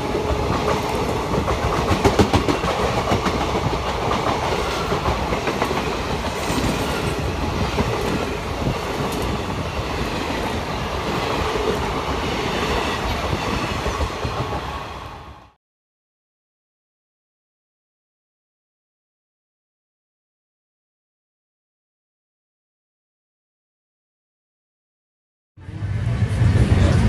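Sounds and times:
rumble and rattle of train coaches: 0:00.0 - 0:15.5, 0:25.6 - 0:27.0
train wheels clattering over rail joints: 0:00.2 - 0:14.1.

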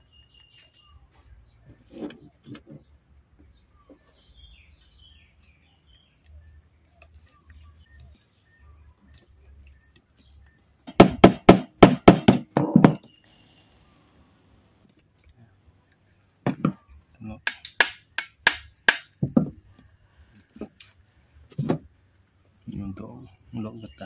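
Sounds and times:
faint bird chirps: 0:00.0 - 0:10.8, 0:13.0 - 0:14.6.

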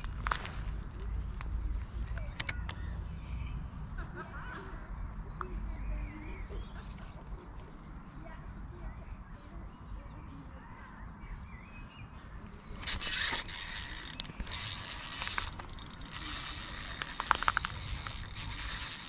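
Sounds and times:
fishing reel clicking: 0:12.7 - 0:19.0.

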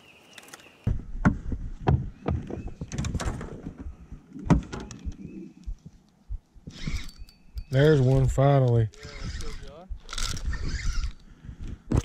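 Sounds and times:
low thumps: 0:00.9 - 0:07.7
fishing rod and reel handling: 0:06.0 - 0:11.3.

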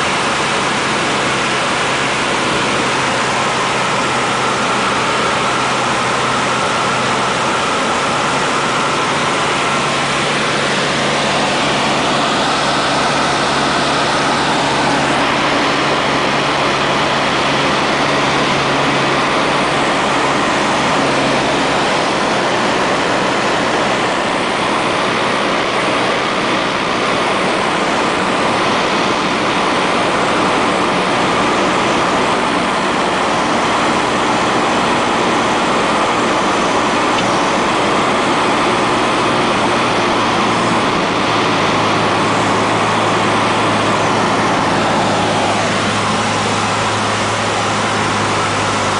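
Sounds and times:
airplane engine and propeller: 0:00.0 - 0:48.9
rushing airflow: 0:00.0 - 0:48.9.

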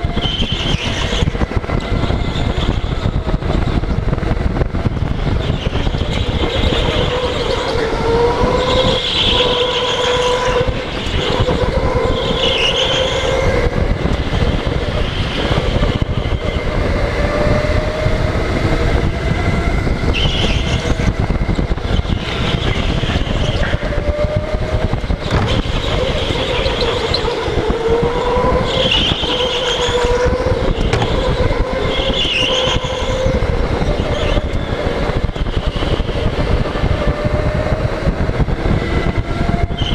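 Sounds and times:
go-kart motor whine and rumble: 0:00.0 - 0:39.9.

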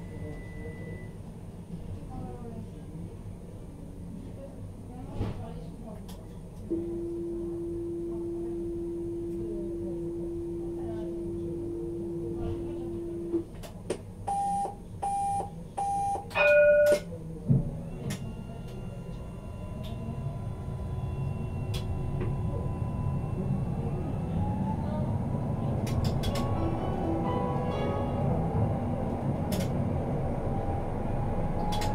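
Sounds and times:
short beeps: 0:00.0 - 0:01.1, 0:14.3 - 0:17.1
wheel and track rumble: 0:17.4 - 0:31.9
tram motor whine: 0:17.6 - 0:31.9.

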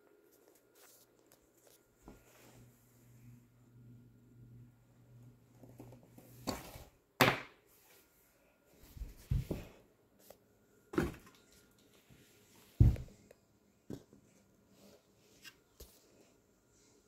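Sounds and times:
faint low hum: 0:00.0 - 0:17.0.

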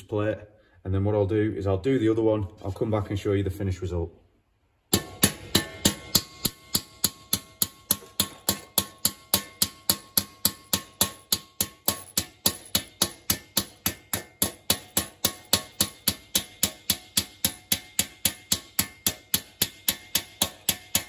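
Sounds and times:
hammer striking metal rivet: 0:04.9 - 0:21.0.

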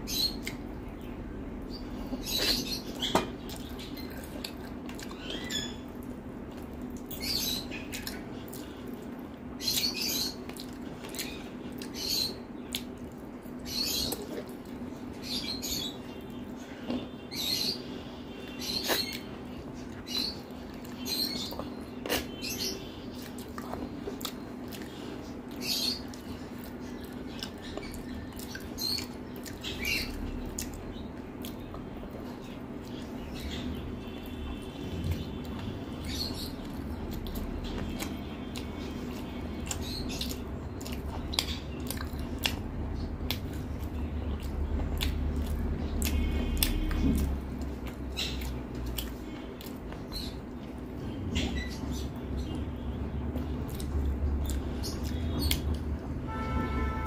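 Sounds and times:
wet chewing: 0:02.4 - 0:12.0, 0:20.5 - 0:22.6, 0:23.2 - 0:30.8, 0:35.1 - 0:50.8, 0:53.4 - 0:56.0.

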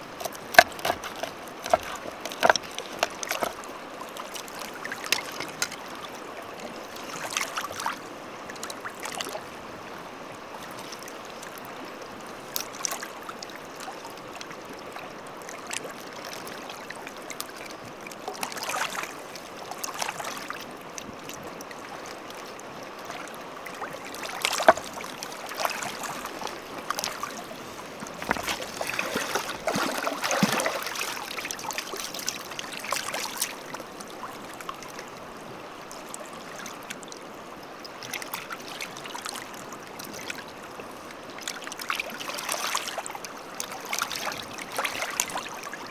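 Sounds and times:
stream water flowing: 0:00.0 - 0:45.9
sharp clicks and knocks: 0:00.2 - 0:03.6.

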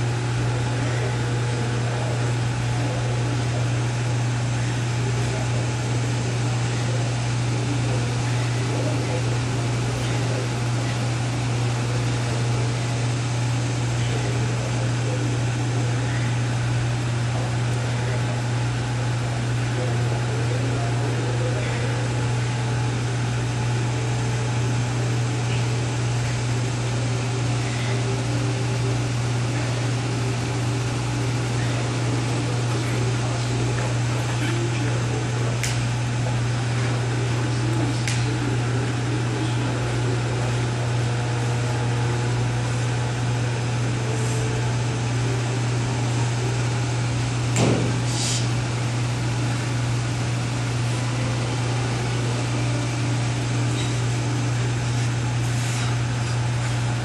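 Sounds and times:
ventilation hum and hiss: 0:00.0 - 0:57.0.

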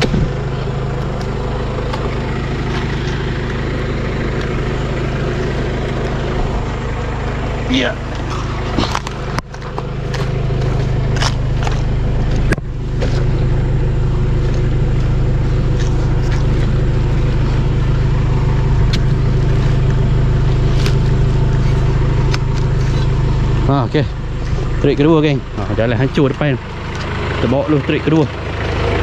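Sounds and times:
sharp knocks and thumps: 0:00.0 - 0:00.4
truck engine idling: 0:00.0 - 0:29.0.

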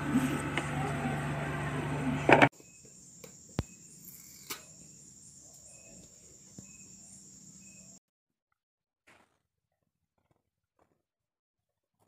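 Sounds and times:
insects trilling and chirping: 0:02.5 - 0:08.0.

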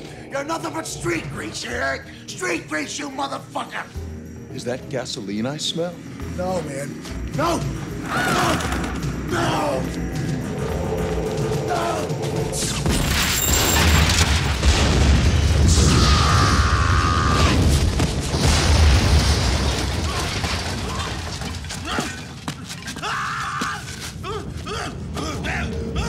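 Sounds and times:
music: 0:00.0 - 0:26.0
fire rumbling: 0:12.5 - 0:26.0
explosion boom and rumble: 0:12.8 - 0:21.9.

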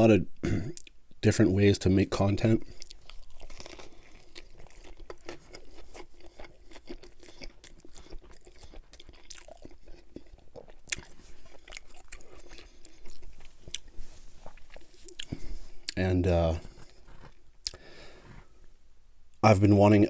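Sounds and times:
close chewing with mouth clicks: 0:02.6 - 0:16.0, 0:16.6 - 0:18.5.

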